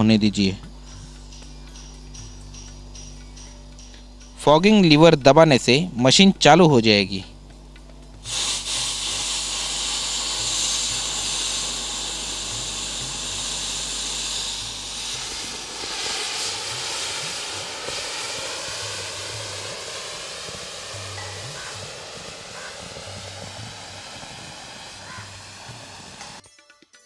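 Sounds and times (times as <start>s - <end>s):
fogger hissing: 8.2s - 26.4s.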